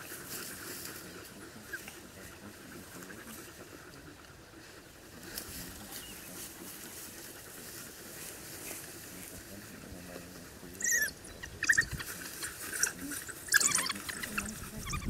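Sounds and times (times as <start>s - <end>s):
wild dogs squealing twitters: 10.8s - 15.0s.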